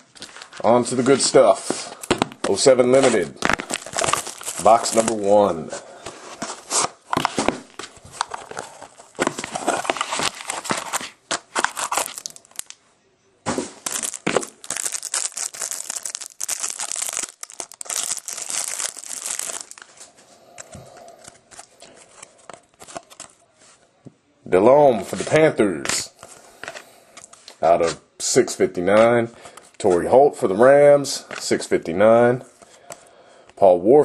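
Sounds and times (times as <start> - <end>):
cards rustling: 0.1 - 12.8, 13.6 - 23.8
wrapping crinkling and tearing: 3.0 - 5.4, 7.8 - 12.8, 13.8 - 20.1.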